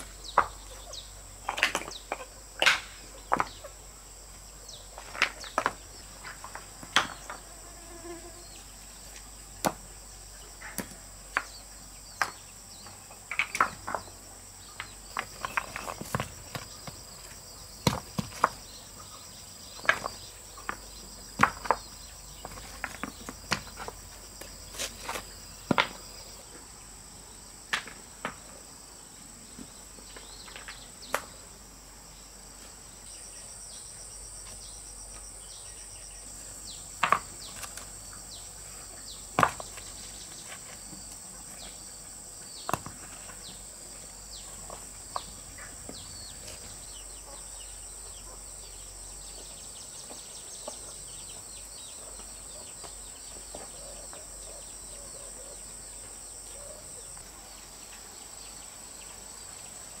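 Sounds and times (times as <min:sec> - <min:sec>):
high-pitched insect chorus: 0:00.0 - 1:00.0.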